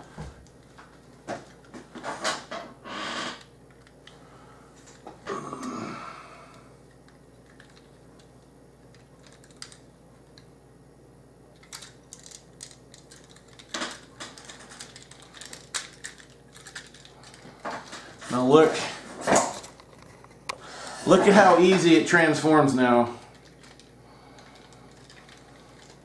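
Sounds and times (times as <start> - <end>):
plastic toy parts clicking: 8.9 - 9.8, 11.6 - 17.4.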